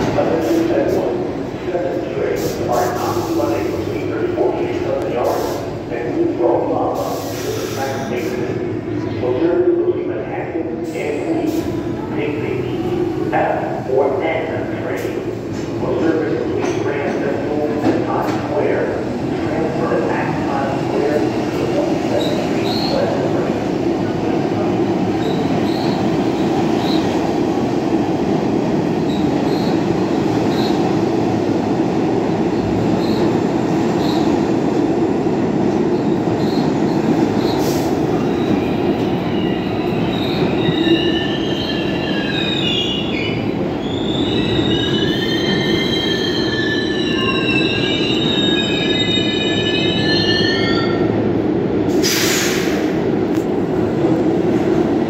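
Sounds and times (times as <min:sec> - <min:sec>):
subway train rumbling: 0:00.0 - 0:55.0
air brakes hissing: 0:05.2 - 0:05.8, 0:07.0 - 0:08.3, 0:37.5 - 0:38.0, 0:51.9 - 0:53.0
train wheels squealing: 0:22.1 - 0:23.3, 0:25.2 - 0:27.1, 0:29.0 - 0:29.9, 0:30.5 - 0:30.8, 0:32.9 - 0:33.4, 0:34.0 - 0:34.3, 0:36.0 - 0:51.2.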